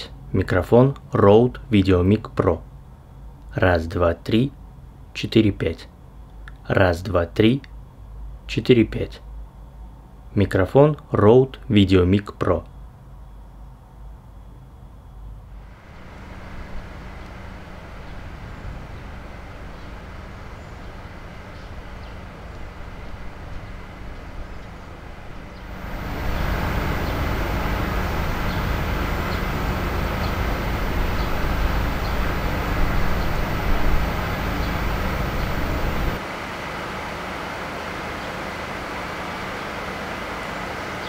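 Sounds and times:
heavy low rumble: 0:15.6 - 0:37.1.

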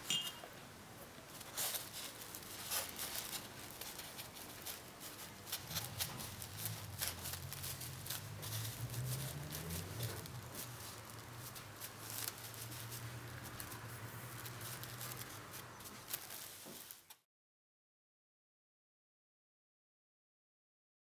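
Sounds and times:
plastic film crinkling: 0:01.2 - 0:17.2.

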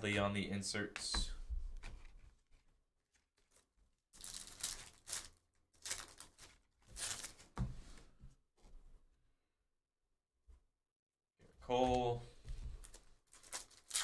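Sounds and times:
foil wrappers crinkling and tearing: 0:03.4 - 0:07.5, 0:12.9 - 0:14.0.

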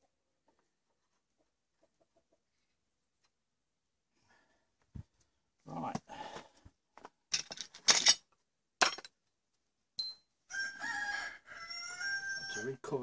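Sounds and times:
metallic clinks and rattles: 0:07.3 - 0:08.2
high metallic ping: 0:10.0 - 0:10.3
rooster crowing: 0:10.5 - 0:12.9.

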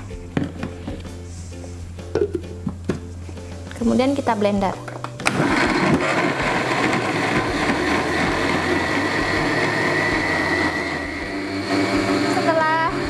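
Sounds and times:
blender running: 0:05.2 - 0:13.0.

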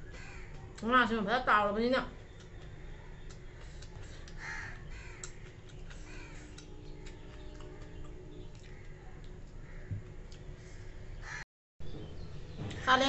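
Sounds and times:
low steady hum: 0:00.0 - 0:13.0
bird cawing: 0:00.1 - 0:00.6, 0:04.4 - 0:06.6, 0:09.6 - 0:11.4.

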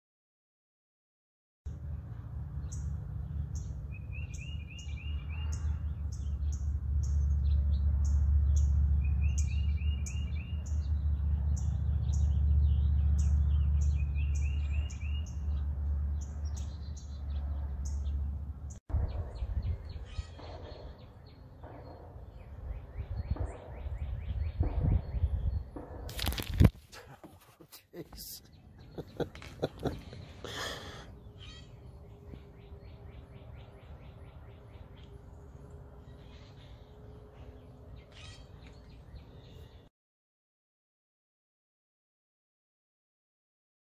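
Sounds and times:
songbirds chirping: 0:01.7 - 0:39.9
loud low rumble: 0:05.1 - 0:26.6
bird trilling: 0:19.8 - 0:21.1, 0:31.2 - 0:34.3, 0:38.1 - 0:38.8.

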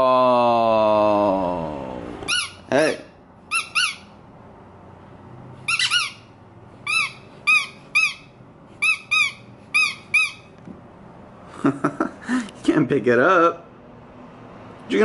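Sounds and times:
squeaky dog toy squeaks: 0:02.3 - 0:04.2, 0:05.6 - 0:10.6.

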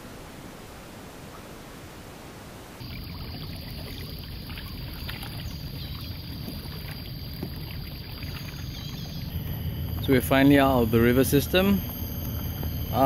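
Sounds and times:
low rumble: 0:02.8 - 0:13.0
water lapping against kayak: 0:02.8 - 0:13.0.

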